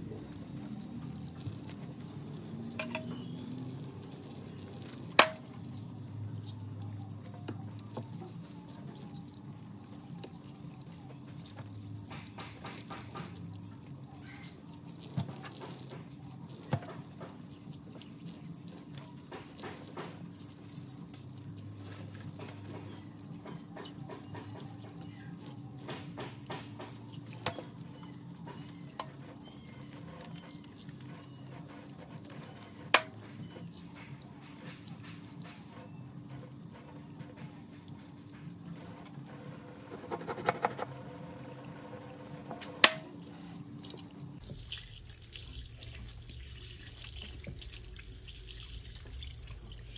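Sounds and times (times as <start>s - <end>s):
tap water splashing into sink: 4.8s - 5.6s, 15.0s - 17.4s, 32.9s - 33.3s, 43.9s - 49.9s.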